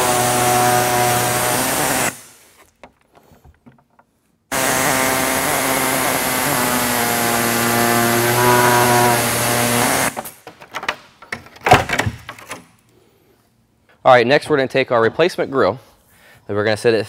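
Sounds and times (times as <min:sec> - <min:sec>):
power tool cutting plastic: 0:00.0 - 0:02.4, 0:04.5 - 0:10.2.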